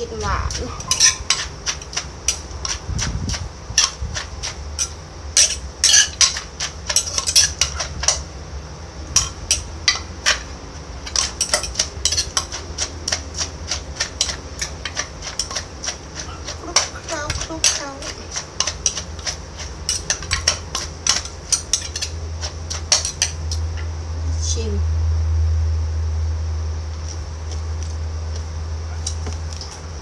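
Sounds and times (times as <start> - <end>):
spoon scraping mortar: 0.0 - 8.3, 9.1 - 23.6
wooden pestle pounding in mortar: 9.2 - 23.5.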